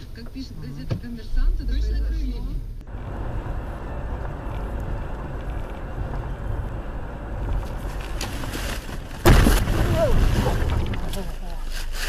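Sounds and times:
car road and engine noise: 0.0s - 12.0s
car crash: 2.9s - 11.5s.

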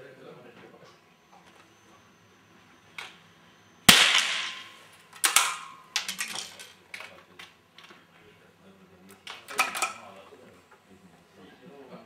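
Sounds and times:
rifle shot: 3.9s - 5.7s.

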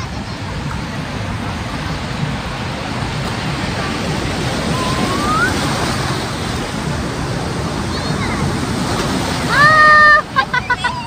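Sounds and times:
surf washing onto beach: 0.0s - 11.0s
faint rising tone: 4.5s - 6.5s.

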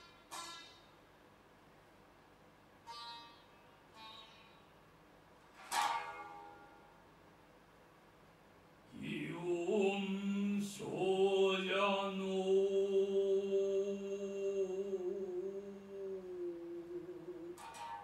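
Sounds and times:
man chanting a long note: 11.4s - 17.8s
lute plectrum stroke: 15.1s - 18.0s.

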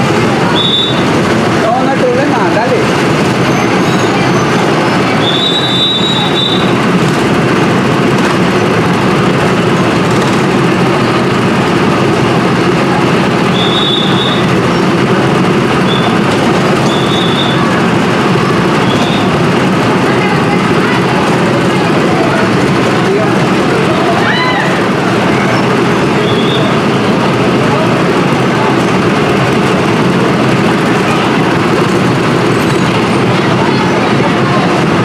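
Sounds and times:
roller coaster rumbling on track: 0.0s - 35.0s
high squeals: 0.4s - 1.2s, 3.3s - 6.9s, 13.4s - 15.1s, 15.7s - 17.8s, 18.5s - 19.5s, 23.9s - 27.1s.

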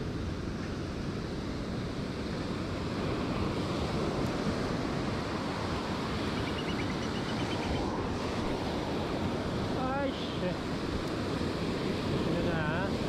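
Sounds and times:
ocean surf breaking: 0.0s - 13.0s.

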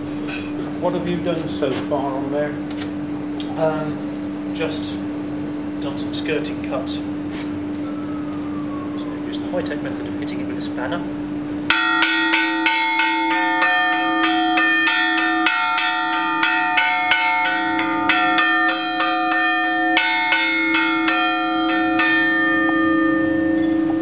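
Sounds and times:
church bell struck with spanner: 11.6s - 24.0s.

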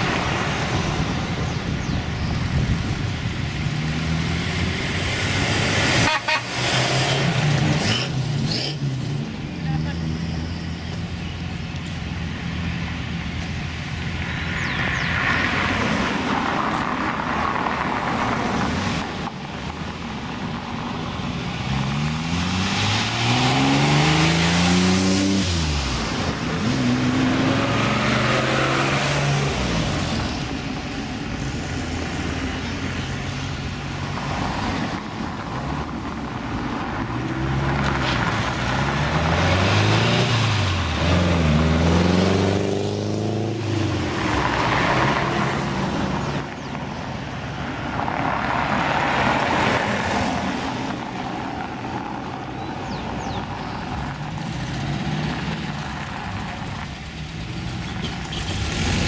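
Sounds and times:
sports cars driving past: 0.0s - 19.4s, 20.2s - 59.0s
car engine revving: 2.1s - 10.8s, 21.3s - 30.6s, 31.4s - 46.7s, 53.2s - 59.0s.

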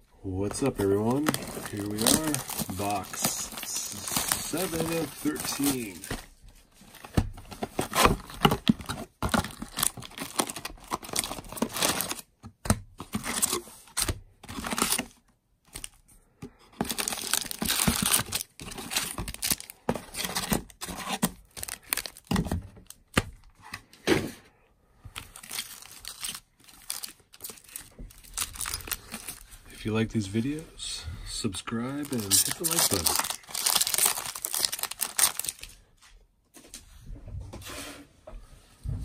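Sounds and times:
foil packs crinkling: 0.5s - 6.3s, 6.9s - 12.3s, 13.0s - 15.1s, 16.7s - 23.4s, 25.2s - 29.6s, 31.9s - 35.8s
foil tearing and crackling: 1.2s - 6.0s, 32.1s - 35.6s.

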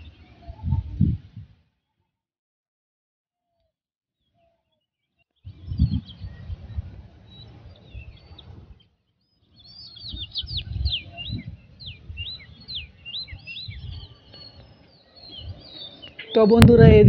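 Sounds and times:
low rumbling on microphone: 0.0s - 1.6s, 5.5s - 8.8s, 9.6s - 17.0s
small birds chirping: 4.2s - 17.0s.

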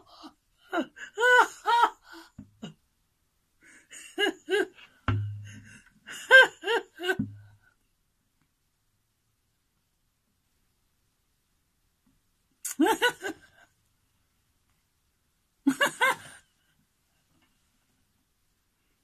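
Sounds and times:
sharp knocks: 5.1s - 5.8s.

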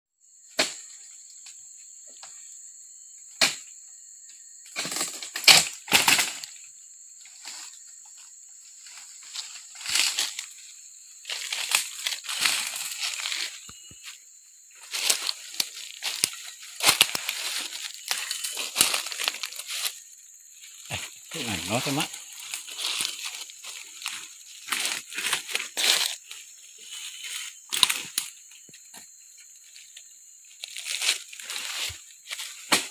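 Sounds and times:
palm fronds rustling and crashing: 4.7s - 6.6s, 8.8s - 13.7s, 14.7s - 20.0s, 20.6s - 28.3s, 30.6s - 32.9s
blade chopping palm fronds: 4.8s - 6.5s, 32.6s - 32.9s.

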